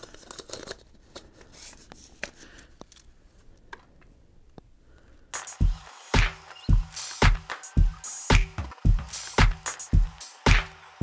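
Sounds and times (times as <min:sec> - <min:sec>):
music with heavy low beat: 0:05.4 - 0:11.0.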